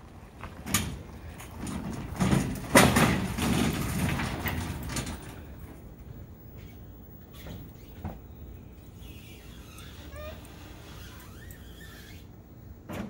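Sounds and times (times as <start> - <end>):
clanks and rattles of metal ramps: 0.4 - 6.3.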